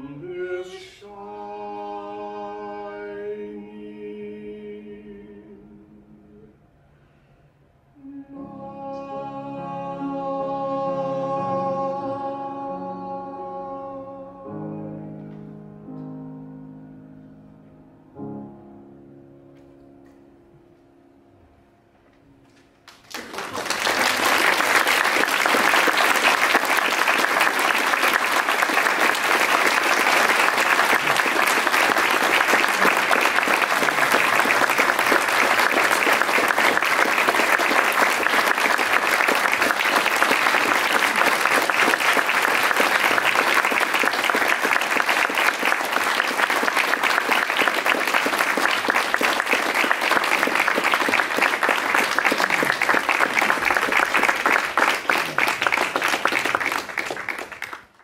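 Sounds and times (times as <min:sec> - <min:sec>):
audience applauding: 0:22.8 - 0:58.0.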